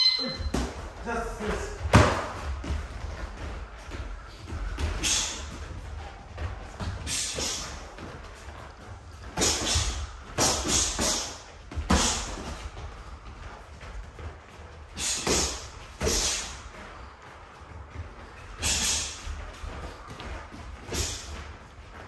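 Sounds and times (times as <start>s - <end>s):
boxers hissing sharp breaths: 3.8s - 8.6s, 9.2s - 12.6s, 14.9s - 17.4s, 18.3s - 21.6s.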